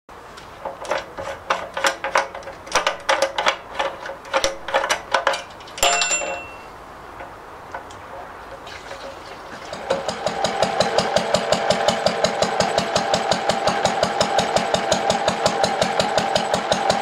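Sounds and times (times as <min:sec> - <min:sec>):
metal cap clinking and rattling: 0:00.8 - 0:07.3
metallic clank ringing: 0:05.3 - 0:06.8.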